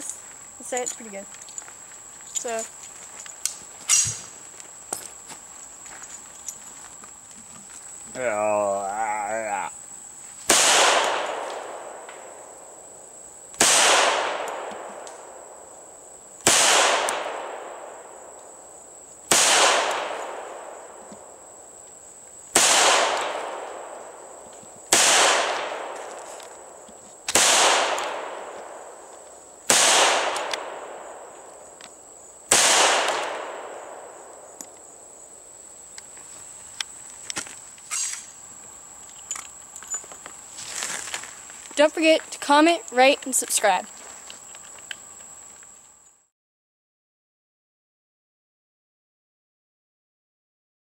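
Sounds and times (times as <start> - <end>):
pistol shots echoing: 10.5 - 12.4, 13.6 - 15.4, 16.4 - 18.0, 19.3 - 20.8, 22.5 - 24.1, 24.9 - 26.0, 27.3 - 28.9, 29.7 - 31.3, 32.5 - 34.4
pistol handling clicks: 30.3 - 30.6.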